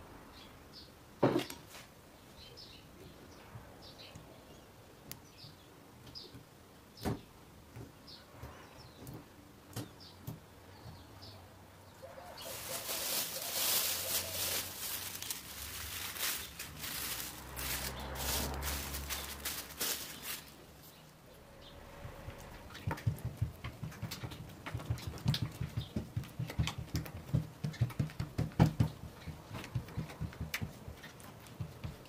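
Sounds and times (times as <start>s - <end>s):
cling film crinkling: 12.3s - 20.6s.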